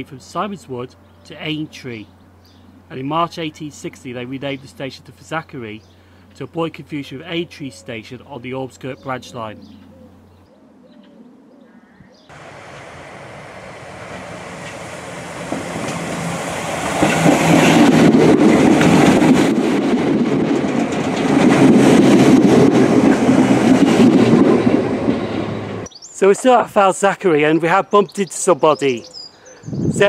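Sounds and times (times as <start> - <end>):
electric train passing: 12.3 - 25.9
wheels clicking over rails: 12.3 - 25.9.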